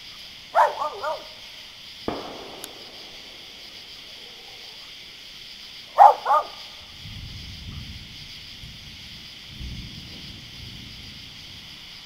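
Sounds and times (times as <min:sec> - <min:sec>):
steady high hiss: 0:00.0 - 0:12.0
dog barking: 0:00.5 - 0:01.4, 0:06.0 - 0:06.7.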